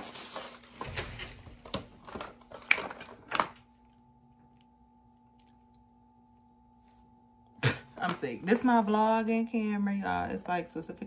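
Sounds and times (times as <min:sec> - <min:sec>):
plastic bag rustling: 0:00.0 - 0:03.8
faint steady hum: 0:00.0 - 0:11.0.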